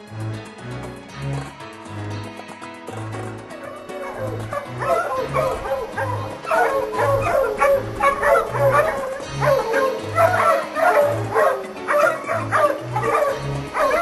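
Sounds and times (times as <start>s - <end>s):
background music with bass: 0.0s - 14.0s
dogs barking and yipping: 3.5s - 14.0s.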